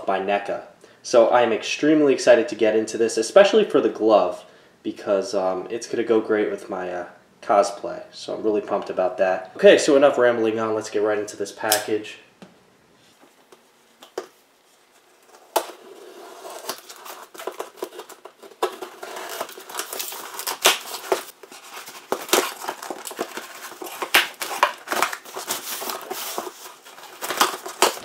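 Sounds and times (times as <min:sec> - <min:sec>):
cardboard scraping: 0:13.0 - 0:28.0
tape ripping: 0:15.1 - 0:28.0
knife cutting packing tape: 0:15.3 - 0:28.0.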